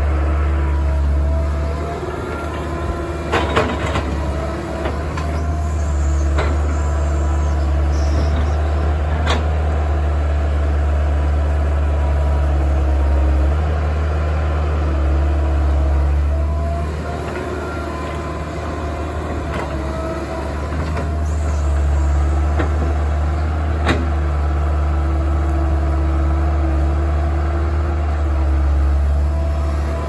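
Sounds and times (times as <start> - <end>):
hydraulic whine: 0.0 - 9.6
excavator diesel engine running: 0.0 - 30.0
excavator bucket clanking: 3.0 - 5.6.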